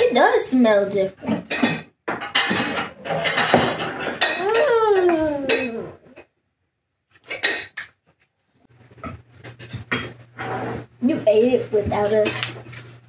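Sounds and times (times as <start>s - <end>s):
plates and cutlery clattering: 1.2s - 4.6s, 7.2s - 8.0s, 9.0s - 10.8s.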